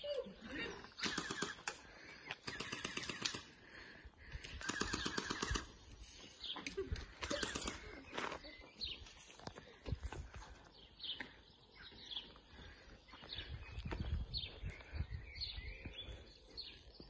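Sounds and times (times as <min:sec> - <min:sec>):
automatic bb gun bursts: 0:01.0 - 0:01.8, 0:02.4 - 0:03.5, 0:04.6 - 0:05.7, 0:07.2 - 0:07.8.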